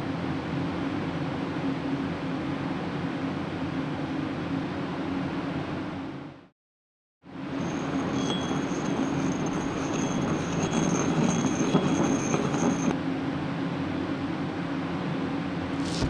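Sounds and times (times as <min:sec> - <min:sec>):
small wheels squealing: 0:07.6 - 0:13.0.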